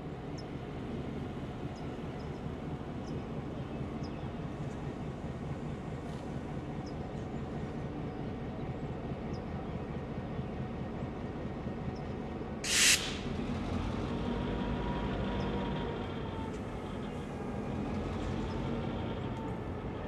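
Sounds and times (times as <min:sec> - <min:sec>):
diesel locomotive engine rumble: 0:00.0 - 0:20.0
hiss of air: 0:12.6 - 0:13.4.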